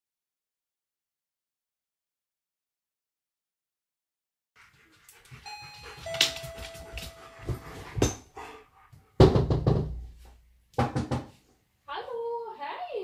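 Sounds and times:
two-tone doorbell chime: 0:05.4 - 0:08.2.

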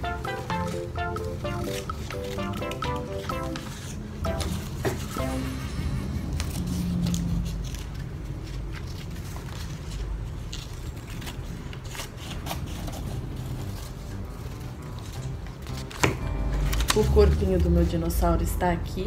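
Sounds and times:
paper rustling: 0:06.2 - 0:17.8
scissors snipping paper: 0:06.3 - 0:17.4.

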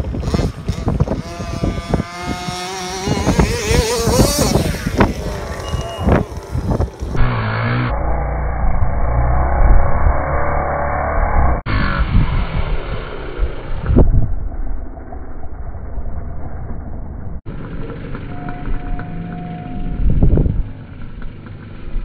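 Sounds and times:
small two-stroke engine revving: 0:00.0 - 0:07.9.

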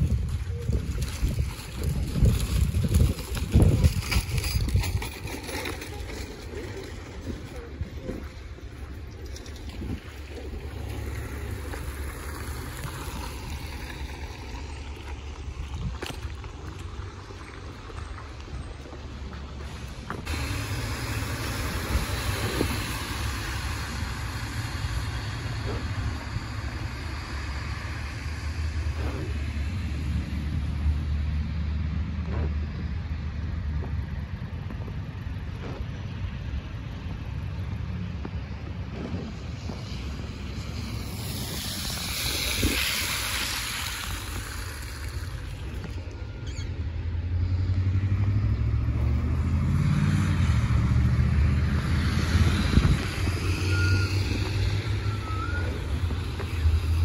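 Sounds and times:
low engine rumble: 0:00.0 - 0:57.0
tyres hissing on wet road: 0:08.4 - 0:34.4, 0:37.3 - 0:57.0
tyre hiss on wet road: 0:10.5 - 0:15.3, 0:19.6 - 0:30.2, 0:39.2 - 0:46.7
truck driving past: 0:16.8 - 0:57.0.

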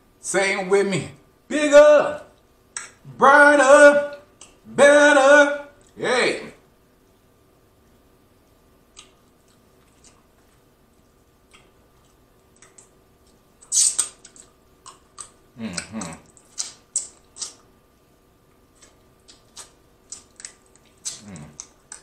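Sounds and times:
lip smacks and clicks: 0:02.4 - 0:03.0, 0:04.3 - 0:04.6, 0:08.9 - 0:10.7, 0:11.4 - 0:17.8, 0:18.5 - 0:22.0
person slurping and sucking food: 0:13.6 - 0:14.2.

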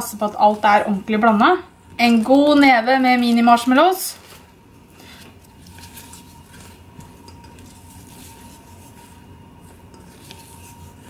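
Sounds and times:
spatula stirring thick chocolate: 0:05.3 - 0:11.0.

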